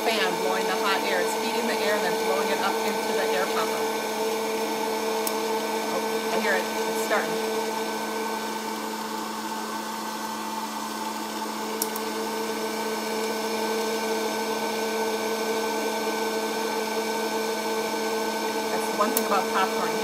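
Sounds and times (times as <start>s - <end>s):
popcorn popper fan humming: 0.0s - 20.0s.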